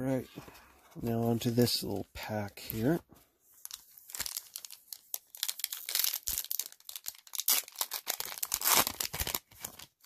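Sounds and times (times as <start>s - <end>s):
foil wrapper tearing and crinkling: 3.6s - 10.0s.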